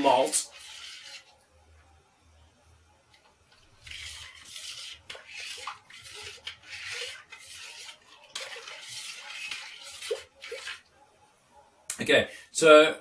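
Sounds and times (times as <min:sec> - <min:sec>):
spoon stirring and scraping a pot: 0:00.0 - 0:01.4, 0:03.2 - 0:10.9.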